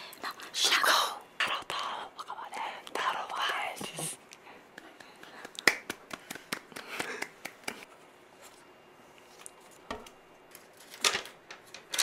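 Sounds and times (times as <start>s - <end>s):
single clap: 5.0s - 7.8s.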